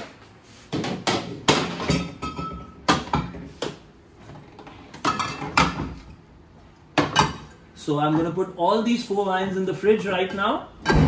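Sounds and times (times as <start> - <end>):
glass bottles clinking on shelves: 1.6 - 3.3, 5.0 - 6.0.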